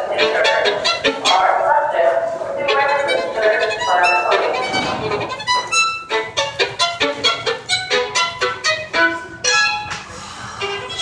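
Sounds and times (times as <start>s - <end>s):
solo violin playing: 0.0s - 1.5s, 2.6s - 11.0s.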